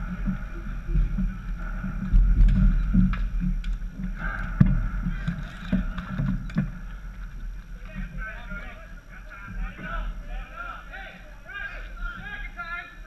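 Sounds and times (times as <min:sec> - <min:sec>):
wind rumble on microphone: 0:00.0 - 0:10.3.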